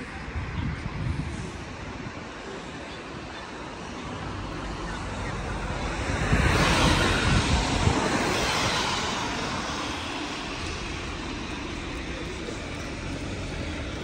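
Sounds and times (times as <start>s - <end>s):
street noise: 0.0s - 14.0s
vehicle passing by: 4.2s - 14.0s.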